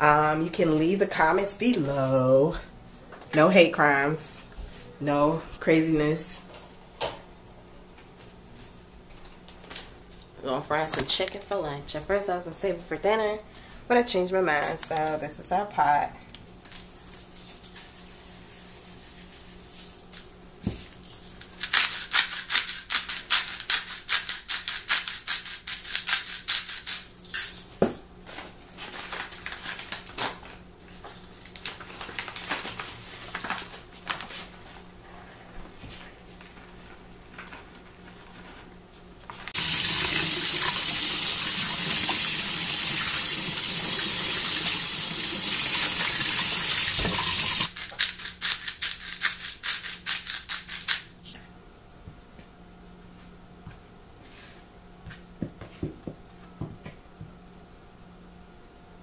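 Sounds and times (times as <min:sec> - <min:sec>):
seasoning shaker rattling: 0:21.2 - 0:27.6, 0:47.2 - 0:51.2
tap water running into sink: 0:39.6 - 0:47.7.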